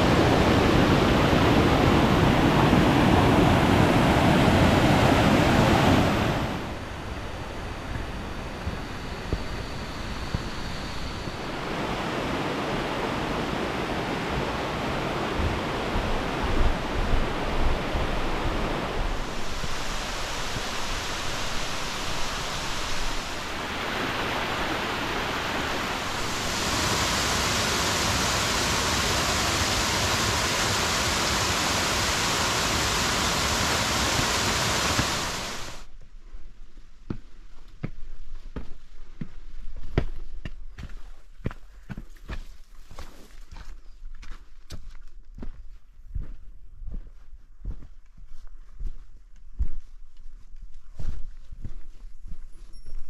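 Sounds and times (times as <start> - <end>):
rushing stream and waterfall: 0.0 - 9.2, 10.6 - 35.9
footsteps on rock: 37.1 - 47.9.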